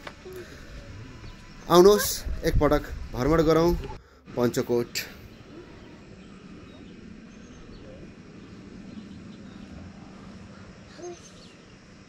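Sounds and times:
low background noise: 0.0s - 12.0s
faint bird chirps: 5.2s - 11.9s.

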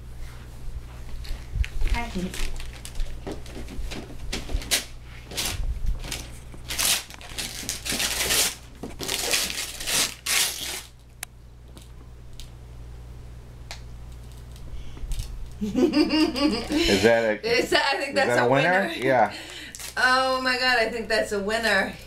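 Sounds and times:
wrapping paper tearing and crinkling: 1.8s - 11.2s, 19.5s - 20.0s.

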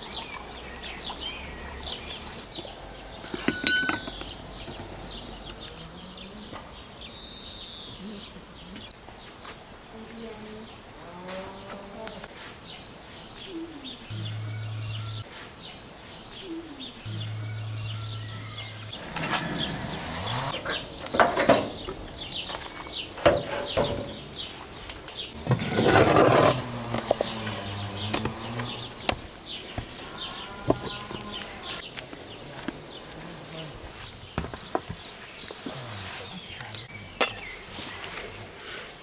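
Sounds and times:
birds chirping: 0.0s - 39.0s
metal pan knocking and scraping: 3.3s - 4.3s
low droning hums: 14.0s - 15.2s, 17.0s - 23.0s.

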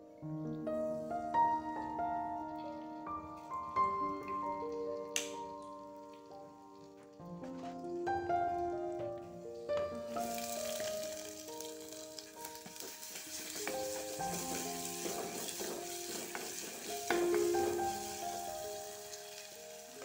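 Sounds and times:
light background music: 0.0s - 20.0s
onions sizzling in hot oil: 9.4s - 20.0s
wooden spatula scraping: 12.7s - 17.5s.

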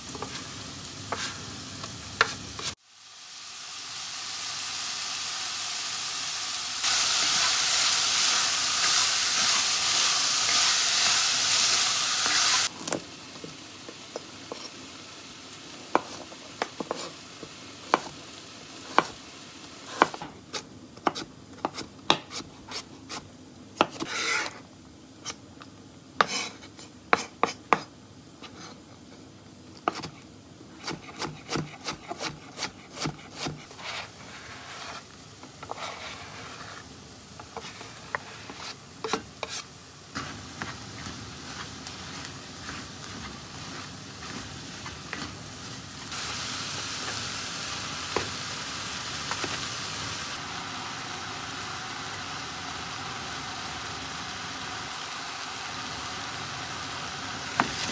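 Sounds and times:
onions sizzling in a pot: 0.0s - 28.8s, 29.8s - 57.9s
knife chopping on cutting board: 30.8s - 33.6s.

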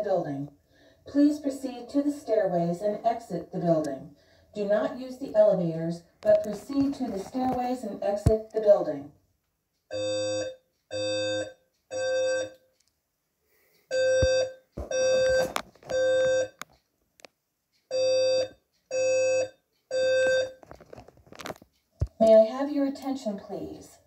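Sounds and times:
fire alarm beeps: 9.9s - 12.7s, 13.9s - 16.6s, 17.9s - 20.6s.

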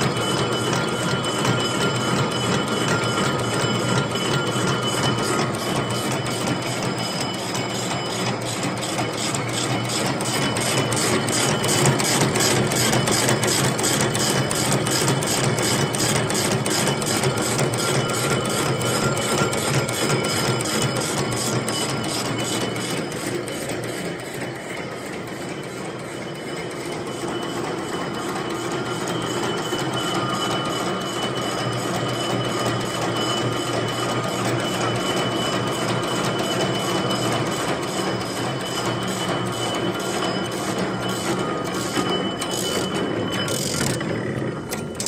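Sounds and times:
machine humming and clattering: 0.0s - 45.0s.

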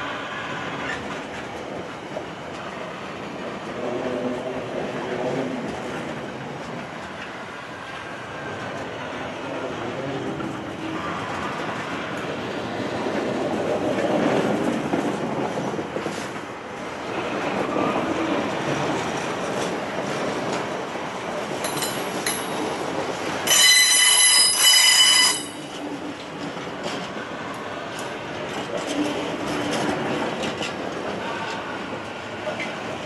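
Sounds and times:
train wheels rumbling on rails: 0.0s - 33.0s
high-pitched metallic wheel squeal: 23.5s - 25.7s.

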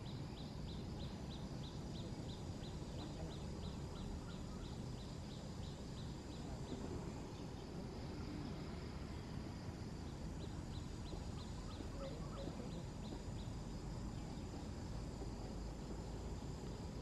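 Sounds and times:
bird chirping: 0.0s - 7.6s, 10.0s - 14.8s.

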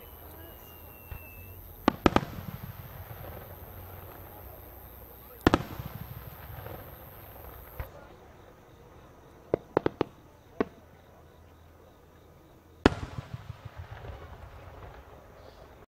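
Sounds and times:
loud firework boom echoing: 0.0s - 8.0s
fireworks bangs: 0.0s - 11.1s, 12.8s - 15.9s.

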